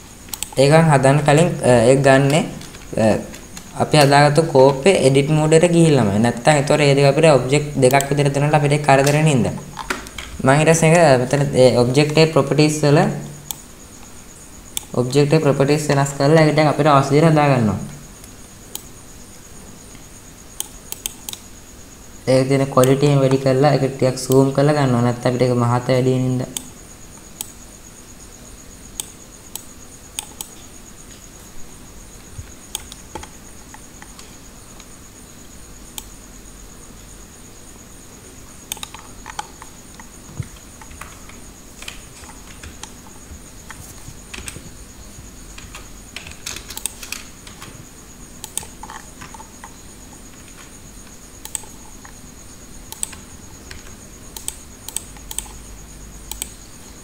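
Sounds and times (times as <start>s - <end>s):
faint high-pitched whine: 0.0s - 57.0s
keyboard and mouse clicks: 0.2s - 0.8s, 2.1s - 5.4s, 7.8s - 8.3s, 8.9s - 10.5s, 20.6s - 21.5s, 29.0s - 31.2s, 32.2s - 34.9s, 38.6s - 44.8s, 45.5s - 47.8s, 48.4s - 52.2s, 52.9s - 56.6s.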